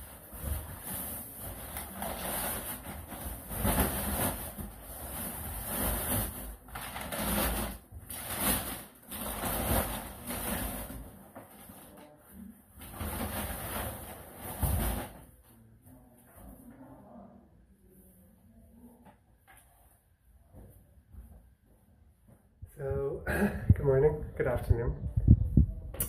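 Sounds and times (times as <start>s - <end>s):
plastic bags rustling: 0.0s - 12.2s.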